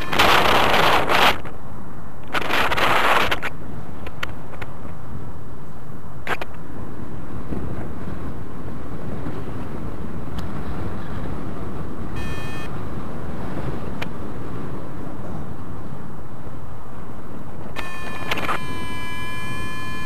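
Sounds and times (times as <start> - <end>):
wind rushing over microphone: 0.0 - 20.0
short electronic beep: 12.2 - 12.7, 17.8 - 20.0.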